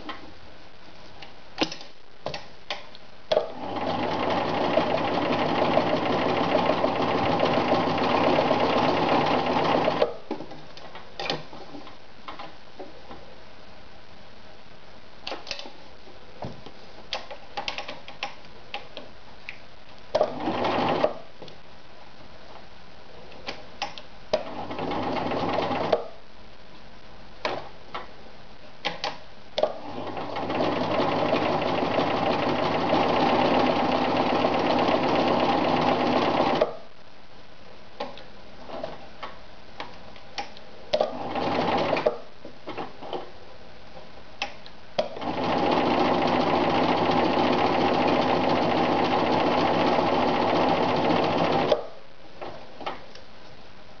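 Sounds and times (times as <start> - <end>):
sewing machine stitching: 3.3 - 10.2, 20.2 - 21.3, 24.4 - 26.2, 29.6 - 36.8, 41.0 - 43.1, 45.0 - 51.9.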